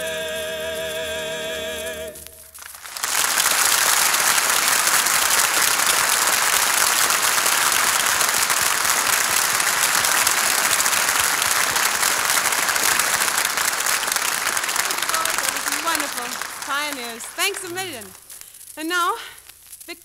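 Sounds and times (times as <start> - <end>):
audience applauding: 2.5 - 18.4.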